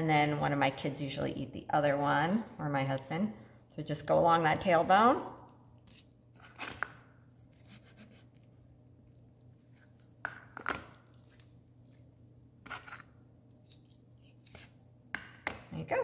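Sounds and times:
knife cutting raw meat: 7.3s - 8.5s.

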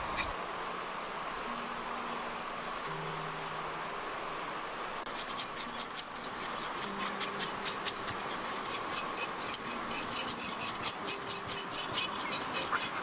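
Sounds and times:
rapid scraping strokes: 5.0s - 13.0s.

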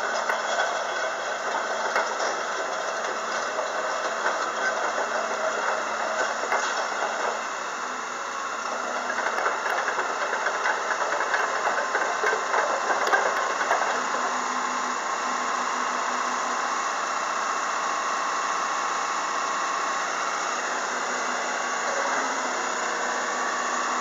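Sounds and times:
rattling and clanking: 0.0s - 7.6s, 8.8s - 14.4s
excavator diesel engine running: 0.0s - 24.0s.

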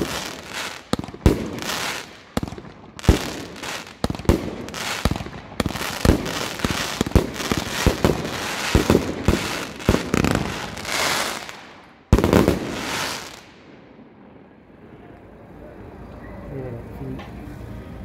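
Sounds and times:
fireworks crackling: 0.0s - 13.7s
fireworks bangs: 0.0s - 13.8s.

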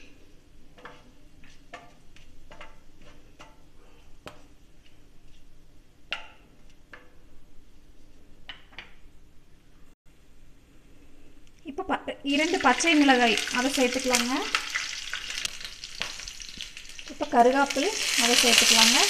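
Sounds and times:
faint oil sizzle: 12.2s - 19.0s
spices crackling in hot oil: 12.2s - 19.0s.

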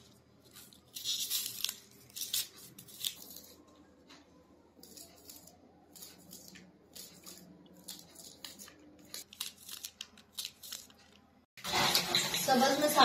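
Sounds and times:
crisp tearing of onion skins: 0.5s - 3.6s, 4.8s - 11.0s.

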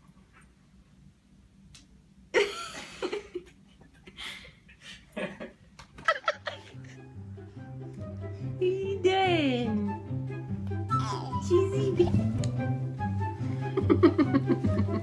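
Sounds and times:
people laughing: 5.1s - 7.0s, 13.7s - 15.0s
soft music: 6.1s - 15.0s.

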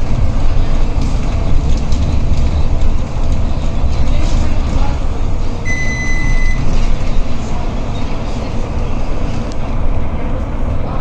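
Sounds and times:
bus engine and road noise: 0.0s - 11.0s
high electronic beep: 5.7s - 6.7s.

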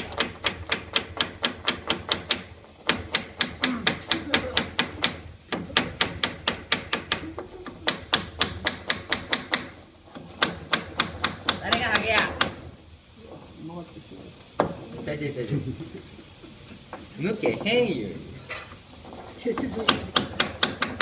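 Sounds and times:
hammer tapping tacks into wood: 0.0s - 12.6s, 19.6s - 21.0s.

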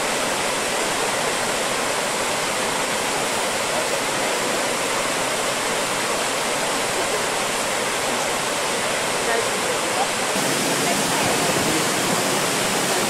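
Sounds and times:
water rushing over rocks: 0.0s - 13.0s.

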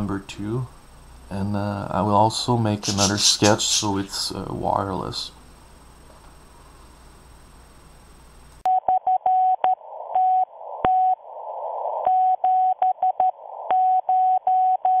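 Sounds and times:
faint room hum: 0.0s - 8.7s
radio static: 2.7s - 5.2s
morse code beeps: 12.1s - 15.0s.

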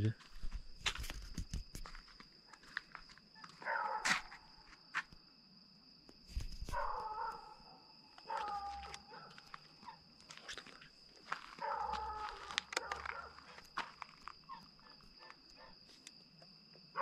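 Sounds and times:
footsteps scuffing: 0.2s - 5.2s, 8.2s - 16.1s.

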